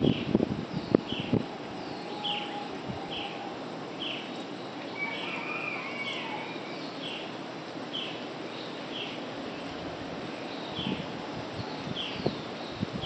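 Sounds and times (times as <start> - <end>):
forest birds chorus: 0.0 - 13.0
bird longer call: 1.1 - 4.3, 4.9 - 7.3.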